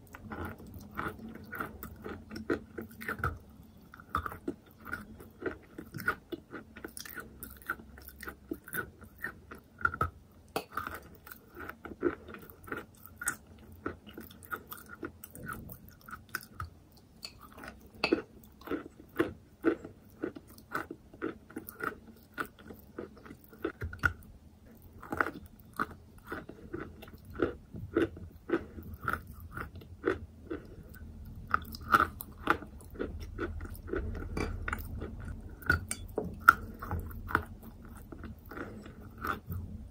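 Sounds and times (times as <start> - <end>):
chewing chalk crunches: 36.4 - 39.6.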